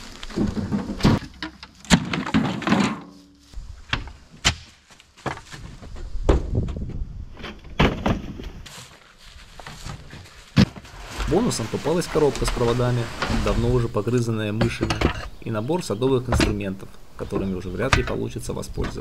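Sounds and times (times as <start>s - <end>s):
metal junk thumping and clattering: 0.3s - 3.2s.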